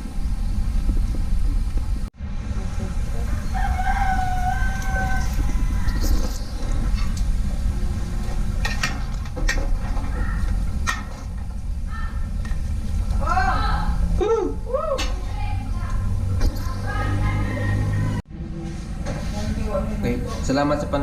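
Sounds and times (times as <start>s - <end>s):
rooster crowing: 3.2s - 6.6s, 16.9s - 18.2s.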